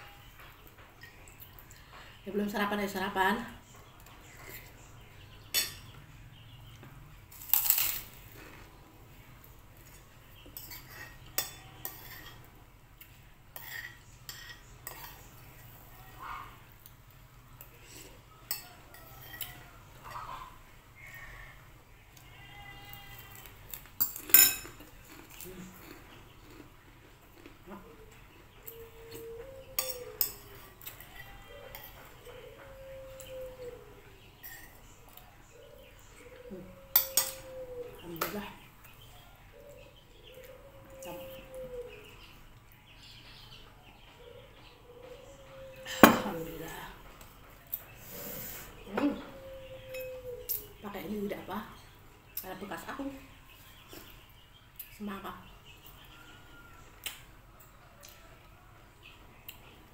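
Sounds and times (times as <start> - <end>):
cutlery clinking on ceramic bowl: 10.6 - 12.5, 13.5 - 15.3, 24.0 - 24.9, 29.2 - 32.2, 36.9 - 37.6, 45.9 - 46.4.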